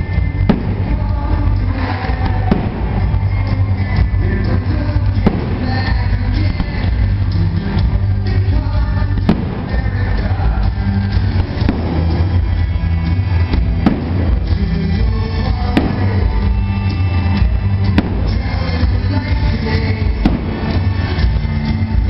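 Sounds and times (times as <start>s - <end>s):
loud music with bass beat: 0.0s - 22.0s
firework shells bursting: 5.2s - 7.0s, 9.2s - 10.0s, 17.7s - 18.6s, 20.2s - 21.2s.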